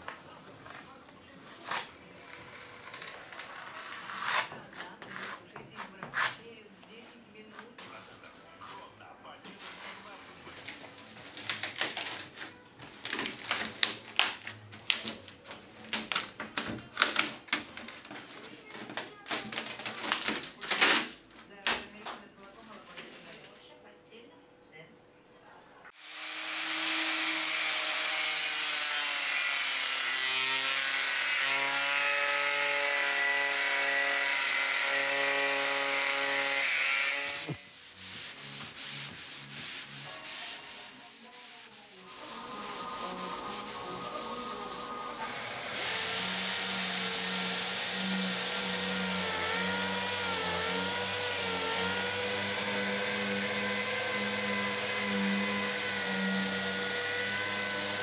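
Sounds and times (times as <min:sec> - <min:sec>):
angle grinder grinding fiberglass: 0:26.0 - 0:58.0
hand-sanding strokes: 0:33.2 - 0:58.0
orbital sander running: 0:34.4 - 0:38.2, 0:42.1 - 0:58.0.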